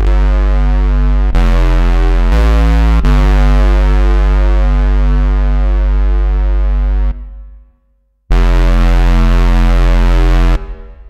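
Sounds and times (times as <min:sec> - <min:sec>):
synthesizer low bass note: 0:00.0 - 0:07.6, 0:08.3 - 0:11.0.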